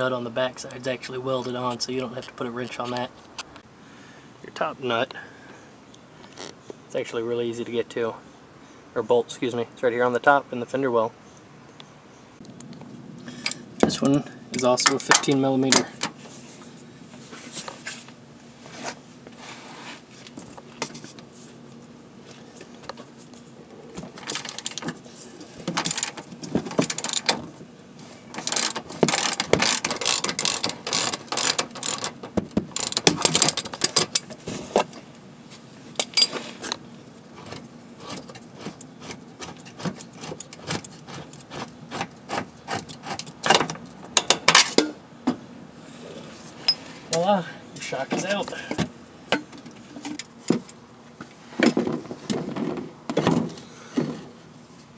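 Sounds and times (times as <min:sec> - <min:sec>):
socket ratchet clicking: 0:28.4 - 0:34.2.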